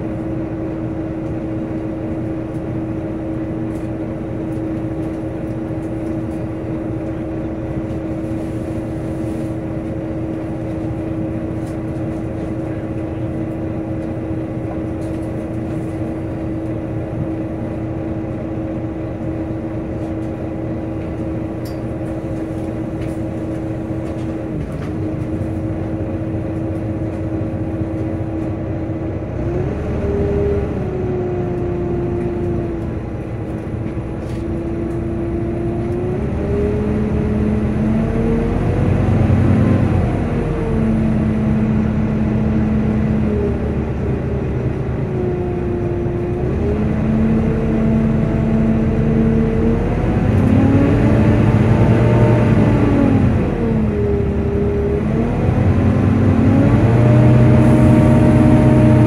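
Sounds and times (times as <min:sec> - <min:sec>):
bus engine and road rumble: 0:00.0 - 0:59.0
cooling fan whining: 0:00.0 - 0:59.0.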